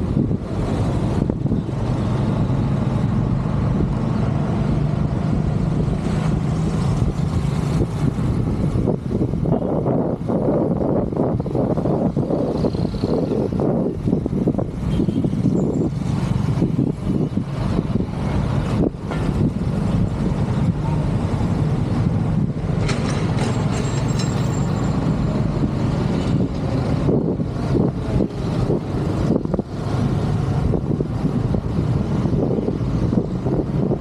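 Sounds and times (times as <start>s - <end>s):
wind buffeting microphone: 0.0s - 23.7s, 24.9s - 34.0s
vehicle engines running: 0.0s - 34.0s.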